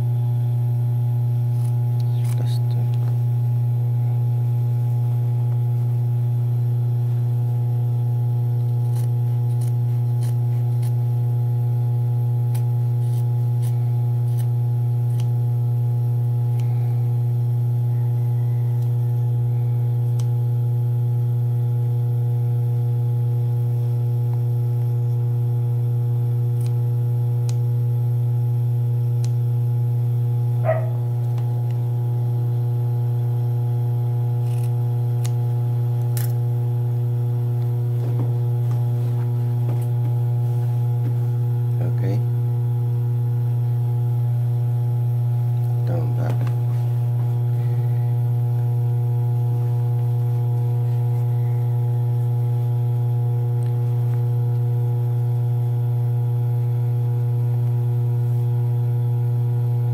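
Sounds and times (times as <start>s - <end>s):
electrical hum: 0.0s - 59.9s
scissors snipping fabric: 1.4s - 2.5s, 8.6s - 11.2s, 12.4s - 15.4s, 26.5s - 26.8s, 34.4s - 35.4s, 36.0s - 36.4s.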